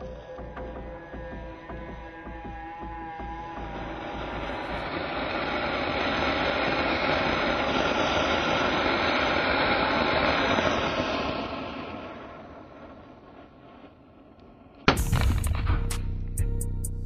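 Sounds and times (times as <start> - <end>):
firework fountain hissing: 2.1 - 15.6.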